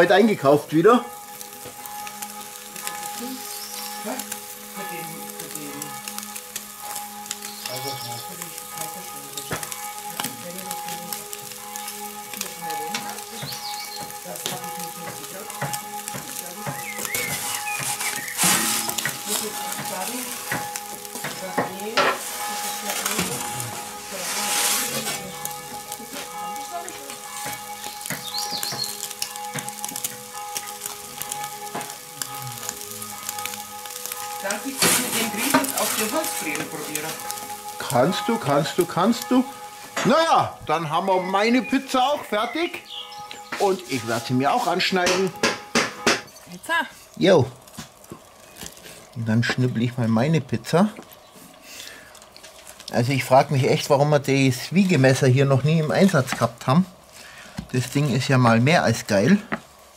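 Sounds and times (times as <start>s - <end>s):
pizza sizzling and crackling: 0.0s - 59.9s
metal peel scraping on stone: 17.2s - 19.8s.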